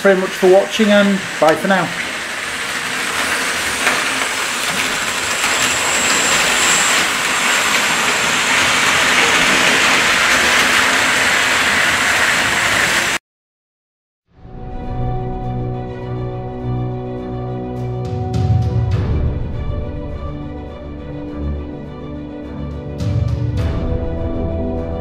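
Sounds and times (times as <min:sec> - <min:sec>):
model train running on track: 0:00.0 - 0:13.2.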